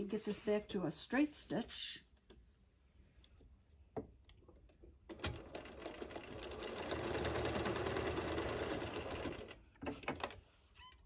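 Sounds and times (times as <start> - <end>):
electric sewing machine stitching: 5.2 - 9.6.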